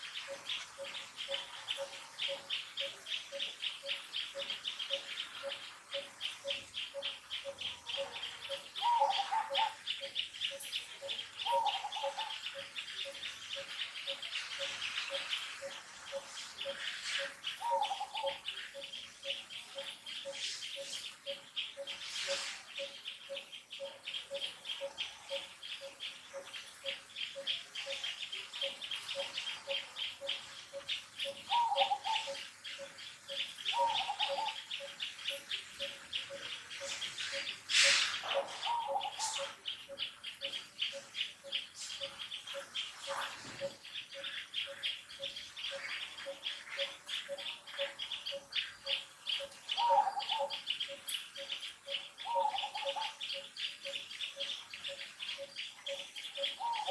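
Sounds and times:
short bird calls: 35.4s - 39.6s.

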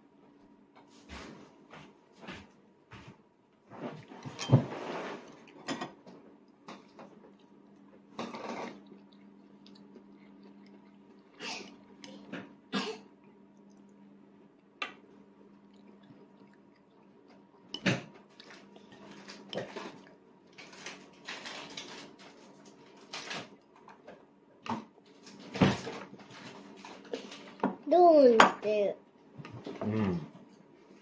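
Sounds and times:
steady low hum: 0.0s - 21.2s.

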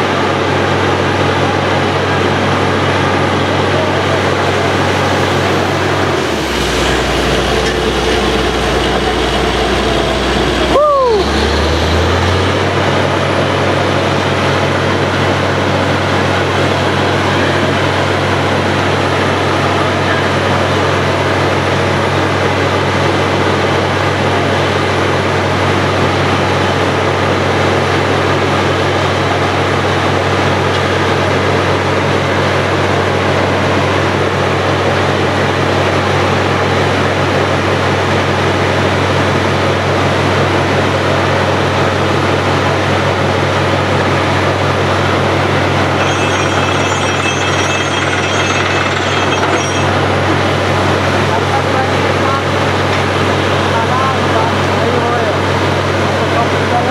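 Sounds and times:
drilling rig engine hum: 0.0s - 56.9s.

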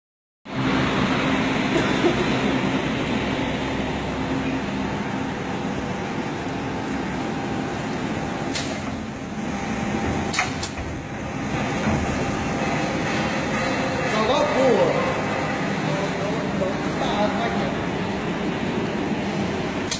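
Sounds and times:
machine humming: 0.5s - 19.9s
machine clicks: 8.5s - 9.0s.

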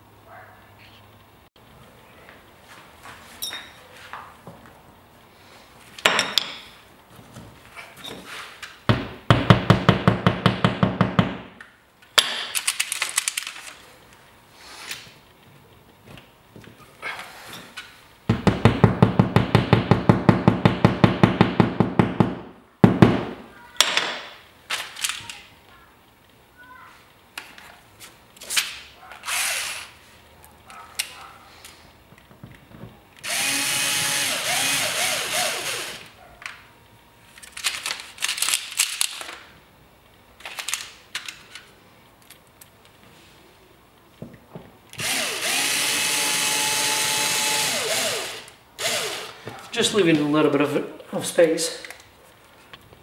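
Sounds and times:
cordless drill running: 29.3s - 29.9s, 33.2s - 36.1s, 45.0s - 49.4s.

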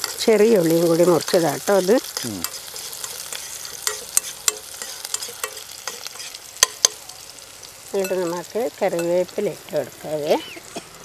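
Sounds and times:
food sizzling in oil: 0.0s - 11.0s
spatula stirring in a pan: 0.0s - 11.0s.

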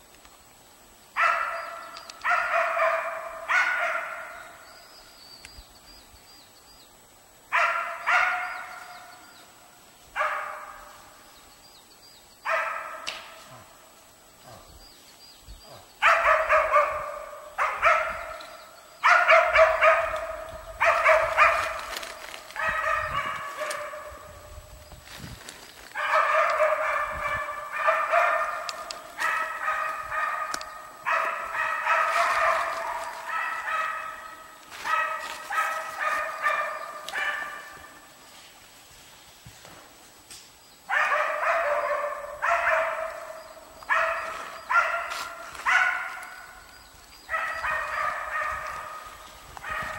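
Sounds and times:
dogs barking: 1.2s - 4.6s, 7.5s - 9.2s, 10.1s - 11.1s, 12.4s - 13.8s, 14.4s - 14.8s, 15.7s - 24.5s, 25.9s - 38.1s, 40.9s - 49.9s.

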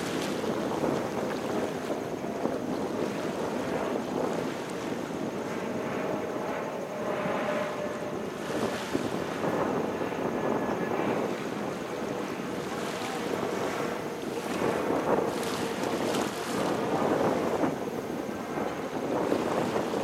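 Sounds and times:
small waves lapping: 0.0s - 20.0s
wind buffeting microphone: 0.0s - 20.0s.

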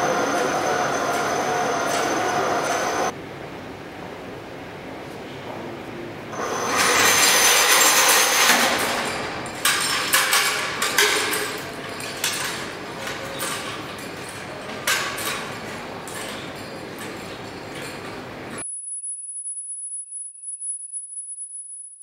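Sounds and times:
metallic knocks and clinks: 7.0s - 18.6s.

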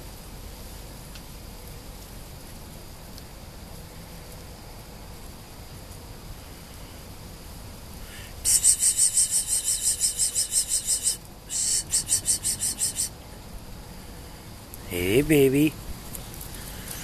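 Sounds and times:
loud high-pitched pulsing chirping: 8.1s - 13.2s.

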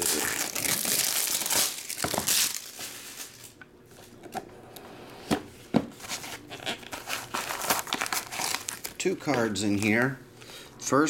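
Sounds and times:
plastic wrap crinkling and tearing: 0.0s - 3.6s, 6.1s - 10.1s
box rustling: 6.0s - 9.4s.

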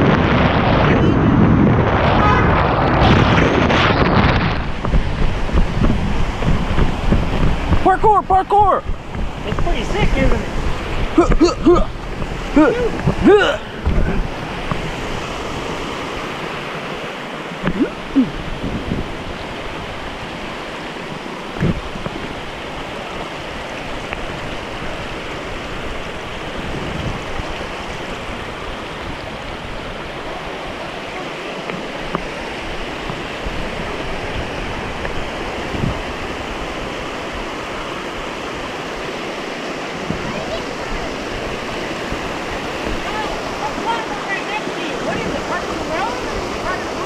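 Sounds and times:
low thumps: 0.0s - 7.8s
creek rushing over stones: 0.0s - 47.0s.

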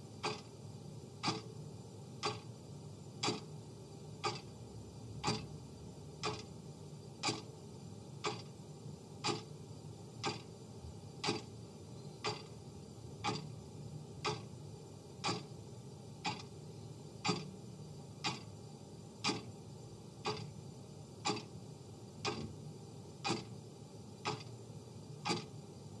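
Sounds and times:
clock ticking: 0.2s - 0.5s, 1.2s - 1.5s, 2.2s - 2.4s, 3.2s - 3.5s, 4.2s - 4.5s, 5.2s - 5.5s, 6.2s - 6.5s, 7.2s - 7.4s, 8.2s - 8.5s, 9.2s - 9.5s, 10.2s - 10.5s, 11.2s - 11.5s, 12.2s - 12.5s, 13.2s - 13.5s, 14.2s - 14.5s, 15.2s - 15.5s, 16.2s - 16.5s, 17.2s - 17.5s, 18.2s - 18.5s, 19.2s - 19.5s, 20.2s - 20.5s, 21.2s - 21.5s, 22.2s - 22.5s, 23.2s - 23.5s, 24.2s - 24.5s, 25.2s - 25.5s.

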